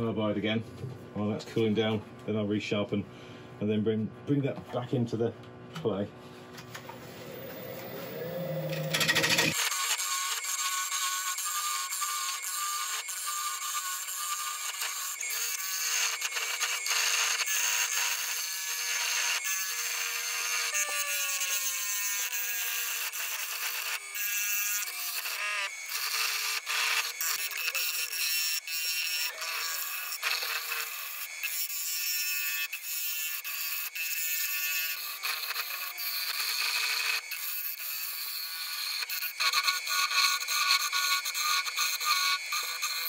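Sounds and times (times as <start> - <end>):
turning tool scraping wood on lathe: 6.7 - 18.2.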